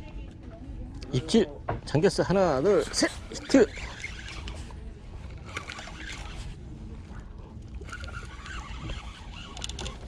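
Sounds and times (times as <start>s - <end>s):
water sloshing against platform: 1.5s - 10.0s
fishing reel clicks: 5.3s - 6.4s, 7.8s - 10.0s.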